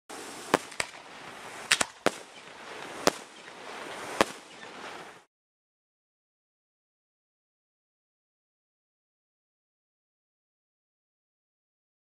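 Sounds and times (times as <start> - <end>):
fireworks bangs: 0.1 - 5.3
steady hiss: 0.1 - 5.3.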